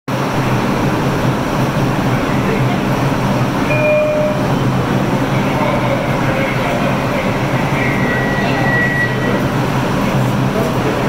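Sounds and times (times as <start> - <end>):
subway train equipment hum: 0.1 - 11.0
thin high tone: 3.7 - 4.5.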